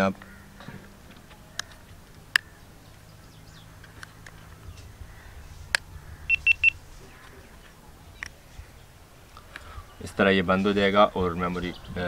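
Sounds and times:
short high beeps: 6.3 - 6.8.

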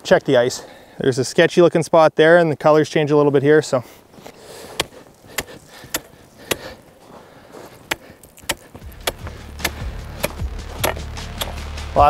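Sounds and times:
ice chisel chopping ice: 4.7 - 6.8, 7.7 - 11.7.

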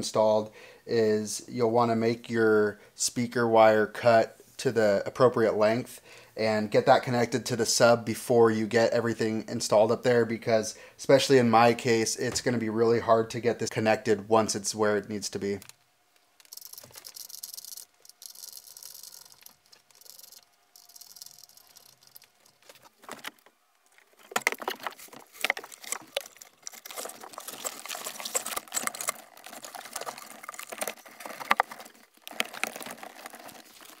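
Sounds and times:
rustling and small clicks: 15.5 - 34.0.

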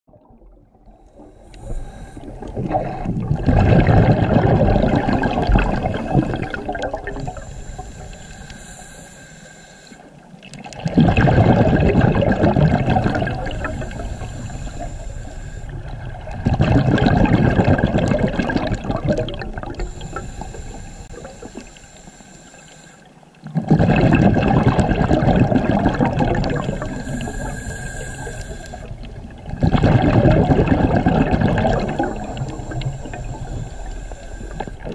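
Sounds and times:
exhaled bubbles rushing: 0.1 - 8.1, 10.5 - 21.8, 23.4 - 34.9
regulator hiss on inhale: 0.9 - 3.1, 5.8 - 10.5, 13.0 - 16.3, 19.4 - 23.4, 26.5 - 29.2, 31.8 - 34.9.

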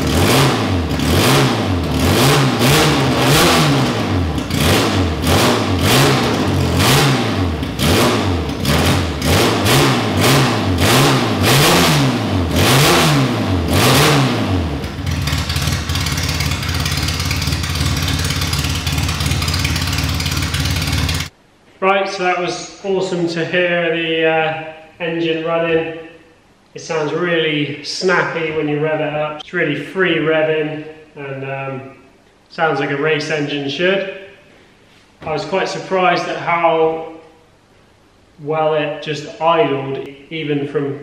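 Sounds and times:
race engine revving and idling: 0.0 - 21.3.

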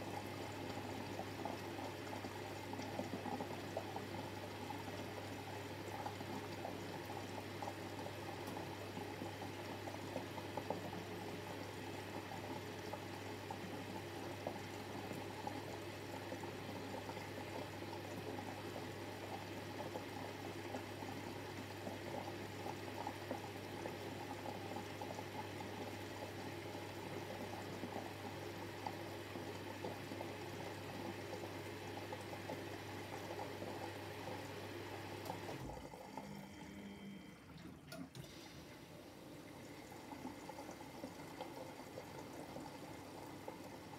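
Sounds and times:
water running into washing machine: 0.0 - 43.9.

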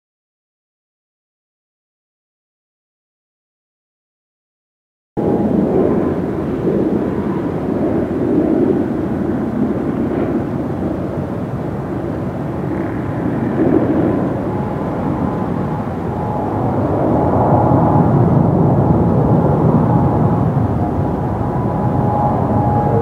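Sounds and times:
faint thin whine: 5.2 - 23.0
jet engine rumble: 5.2 - 23.0.

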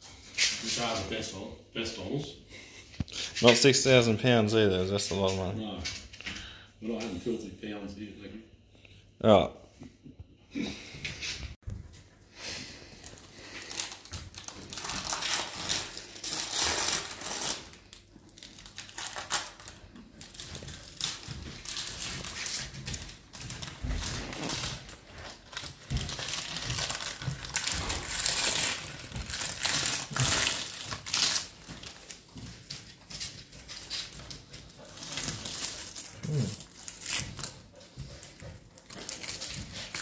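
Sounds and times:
wrapping crinkling and tearing: 12.9 - 32.4, 33.7 - 40.0.

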